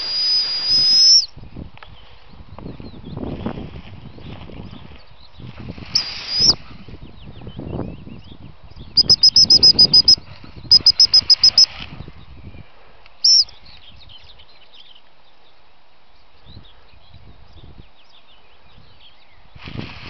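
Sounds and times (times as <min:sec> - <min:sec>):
dog whistle pips: 0:00.0 - 0:01.3, 0:06.0 - 0:06.6, 0:09.0 - 0:11.7, 0:13.3 - 0:13.5
faint birdsong: 0:01.0 - 0:19.7.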